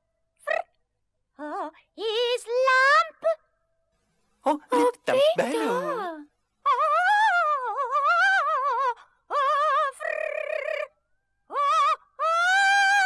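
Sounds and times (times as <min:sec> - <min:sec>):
high-pitched sung warbling: 0:04.6 - 0:06.2.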